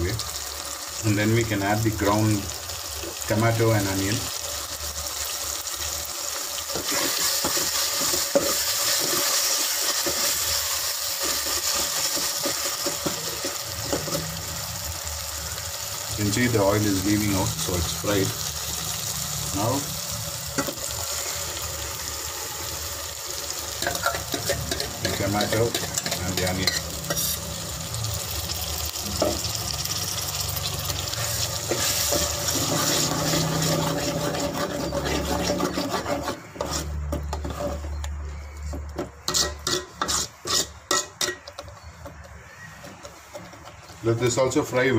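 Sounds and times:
frying sizzle: 0.0 - 44.9
spoon stirring and scraping: 6.7 - 14.4, 23.8 - 27.5, 31.1 - 44.7
metal spoon clinking against pot: 39.3 - 42.3.

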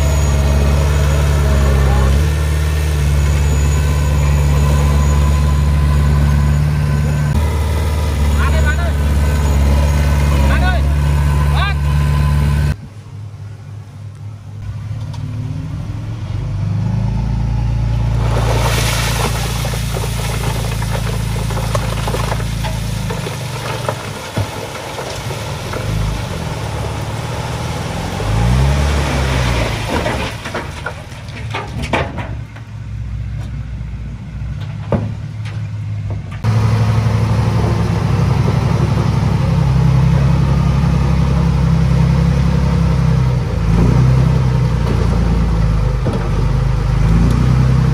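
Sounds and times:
diesel engine running: 0.0 - 12.8, 14.3 - 47.9
broken rock sliding out: 18.1 - 32.6.

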